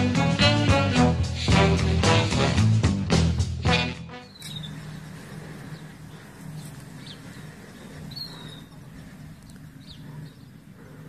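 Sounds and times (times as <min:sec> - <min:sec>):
low outdoor hum: 0:03.2 - 0:11.0
small birds chirping: 0:04.1 - 0:11.0.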